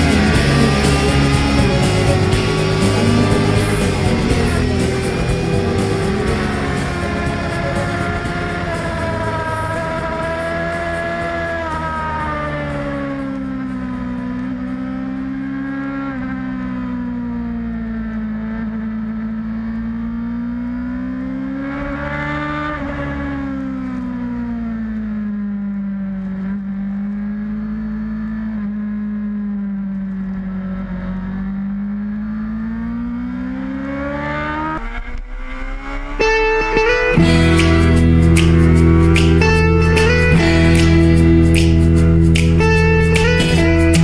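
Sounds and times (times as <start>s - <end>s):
motorcycle engine at high revs: 0.0s - 44.0s.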